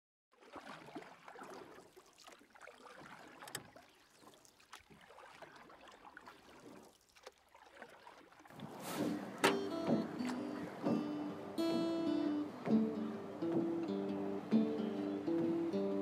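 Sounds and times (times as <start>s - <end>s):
water lapping against hull: 0.3s - 16.0s
small knocks: 9.0s - 11.8s.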